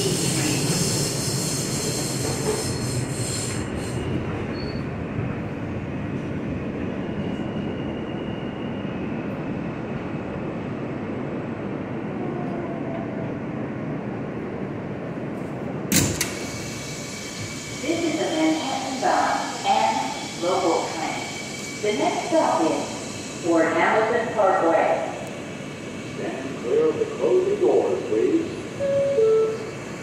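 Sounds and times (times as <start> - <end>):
train wheels rumbling on rail: 0.0 - 30.0
high brake squeal: 0.1 - 4.9, 16.4 - 21.9.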